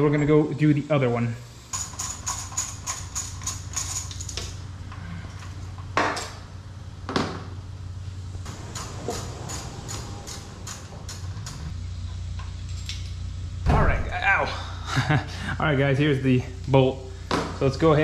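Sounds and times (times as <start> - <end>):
ratchet wrench clicking: 1.7 - 4.6, 8.7 - 11.7
metal clanks: 8.5 - 11.7.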